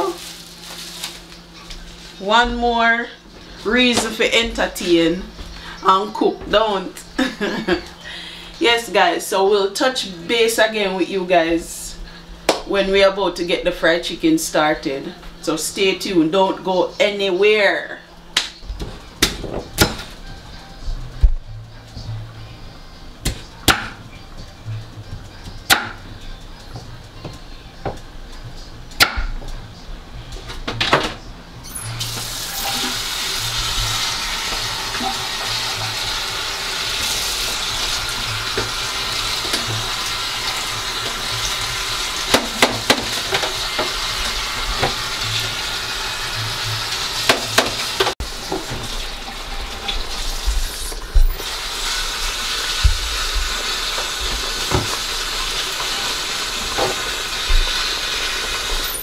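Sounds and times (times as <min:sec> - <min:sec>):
tap running into metal sink: 0:47.3 - 0:49.0.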